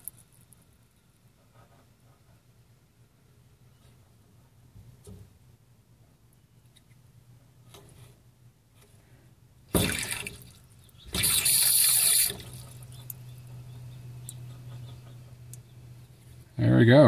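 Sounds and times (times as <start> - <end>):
water spurting into pan: 9.7 - 12.8
water trickling: 9.7 - 13.5.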